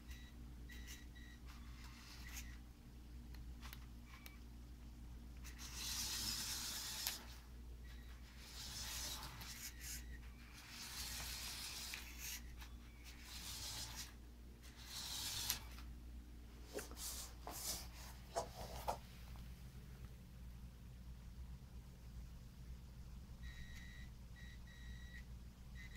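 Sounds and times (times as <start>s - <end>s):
toy car scraping on wooden floor: 13.2s - 14.1s, 14.8s - 15.7s.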